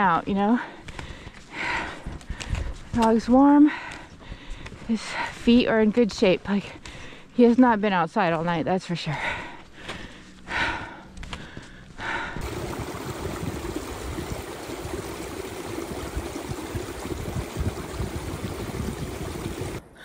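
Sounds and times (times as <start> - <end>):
steady rushing noise: 12.4 - 19.8.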